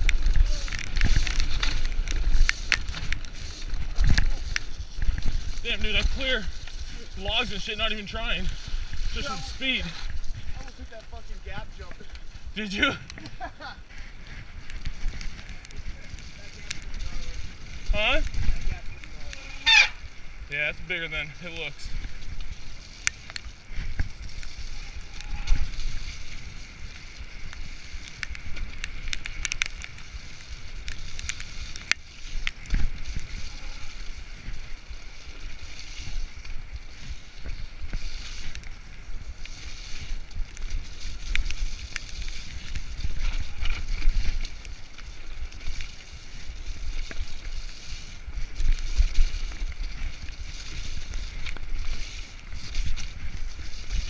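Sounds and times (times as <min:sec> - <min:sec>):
bike clicks and rattles: 0:00.0 - 0:54.0
tyres rolling over dirt: 0:00.0 - 0:54.0
wind buffeting microphone: 0:00.0 - 0:54.0.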